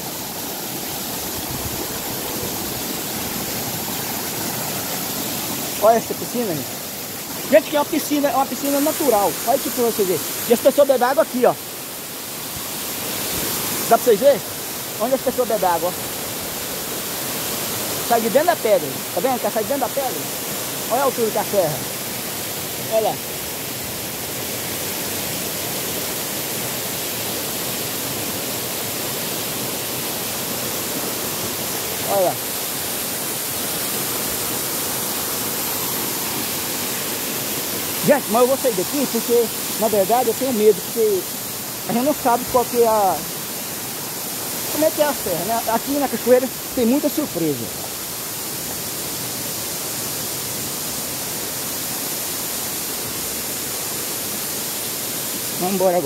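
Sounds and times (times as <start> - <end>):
stream running over rocks: 0.0 - 56.0
waterfall rushing: 0.0 - 56.0.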